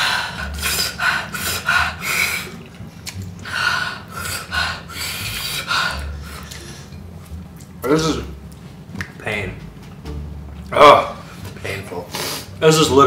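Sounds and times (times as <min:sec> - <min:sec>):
people breathing sharply: 0:03.5 - 0:07.0.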